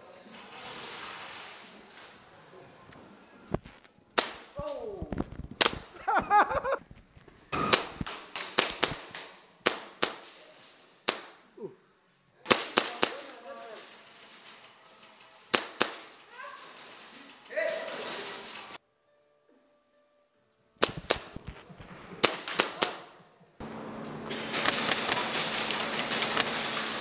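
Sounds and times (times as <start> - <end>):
airsoft guns firing: 4.2 - 4.7, 5.6 - 6.0, 7.5 - 11.5, 12.5 - 14.6, 15.2 - 17.0, 20.8 - 23.2.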